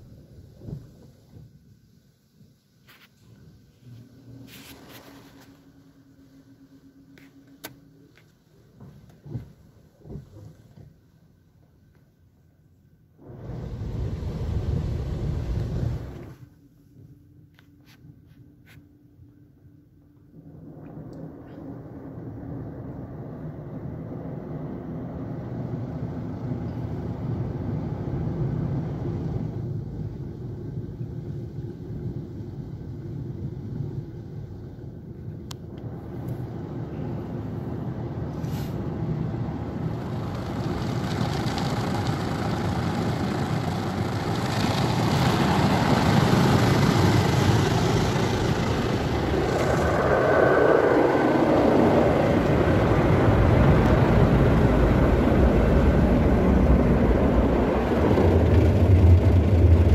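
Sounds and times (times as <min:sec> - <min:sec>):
car wash machinery rumble: 0:00.0 - 0:17.0, 0:20.1 - 0:59.9
car wash brushes scrubbing car: 0:38.4 - 0:53.6.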